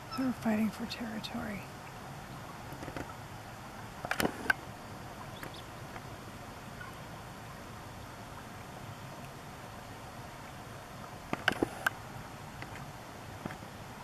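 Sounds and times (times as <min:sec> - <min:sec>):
faint outdoor background noise: 0:00.0 - 0:14.0
sharp clicks or knocks: 0:04.1 - 0:04.6, 0:11.3 - 0:12.0.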